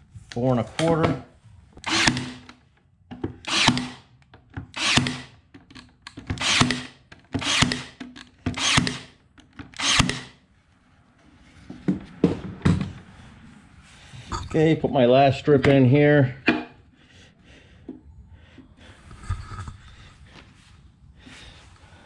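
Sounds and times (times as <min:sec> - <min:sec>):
nail gun firing: 0:01.8 - 0:02.6, 0:03.4 - 0:04.1, 0:04.7 - 0:10.4.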